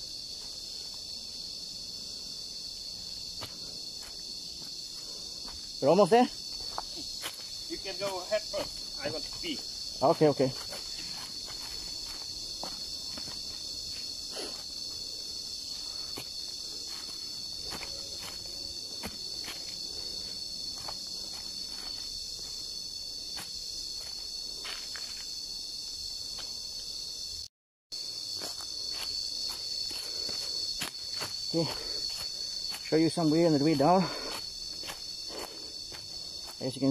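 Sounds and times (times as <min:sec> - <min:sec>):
high-pitched insect chorus: 0:00.0 - 0:36.9
footsteps on dry leaves: 0:06.4 - 0:14.1.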